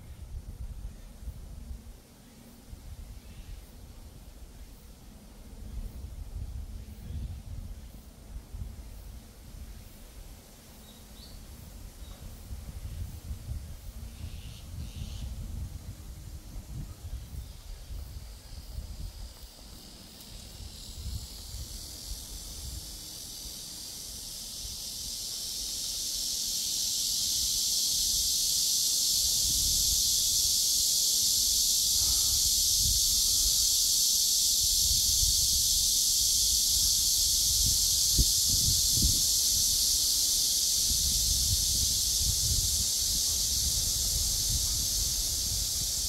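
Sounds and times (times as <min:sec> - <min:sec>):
wind rumbling on microphone: 0:00.0 - 0:02.0, 0:05.6 - 0:10.4, 0:11.4 - 0:23.2, 0:29.2 - 0:46.0
cicadas buzzing: 0:00.0 - 0:46.0.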